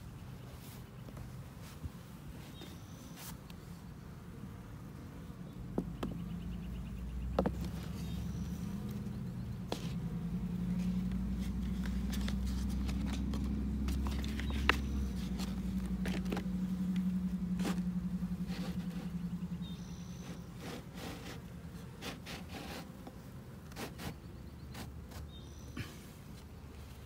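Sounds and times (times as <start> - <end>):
bees buzzing: 0.2 - 27.0
knocks and scrapes on wood: 5.8 - 6.3, 7.3 - 8.2
paper rustling: 10.8 - 16.6.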